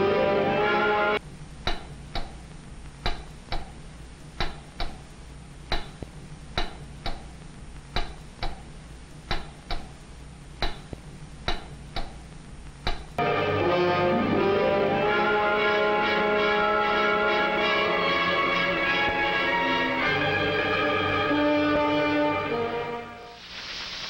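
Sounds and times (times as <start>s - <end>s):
low steady hum: 0.0s - 18.7s.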